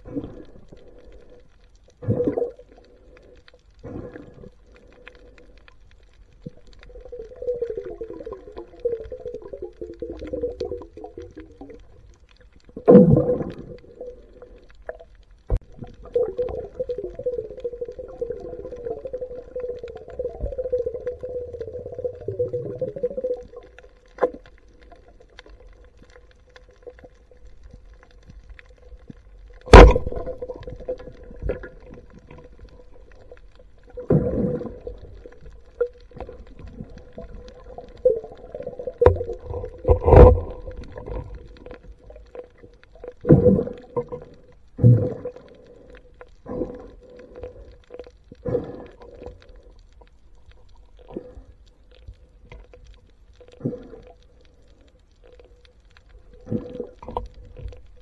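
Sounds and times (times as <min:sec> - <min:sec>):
faint steady hum: 0:00.0 - 0:58.0.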